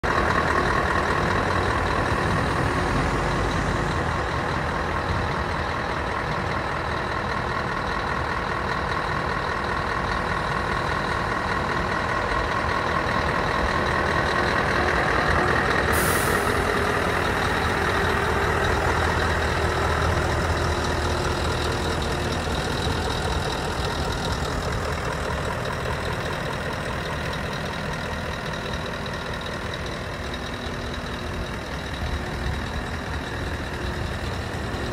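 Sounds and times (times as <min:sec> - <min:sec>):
diesel truck engine idling: 0:00.0 - 0:34.9
sharp air hiss: 0:15.9 - 0:16.8.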